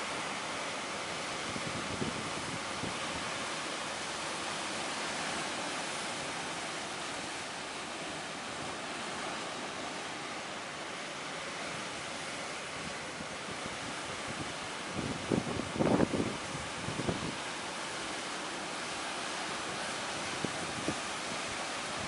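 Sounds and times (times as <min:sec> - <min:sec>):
waves breaking on rough sea: 0:00.0 - 0:22.0
strong wind: 0:01.3 - 0:03.4, 0:12.7 - 0:17.6, 0:19.6 - 0:22.0.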